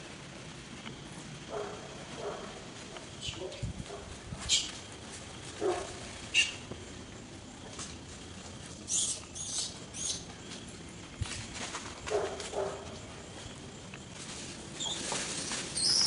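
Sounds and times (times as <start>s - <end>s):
low monkey call: 6.2s - 6.7s, 8.9s - 10.3s
monkeys squeaking: 8.9s - 10.2s, 15.8s - 16.0s.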